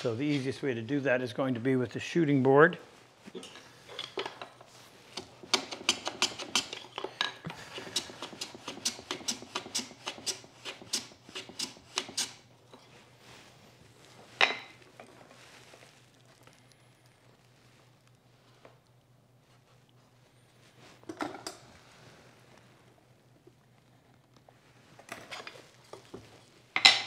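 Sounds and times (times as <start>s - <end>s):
hand plane strokes on wood: 7.5s - 12.4s.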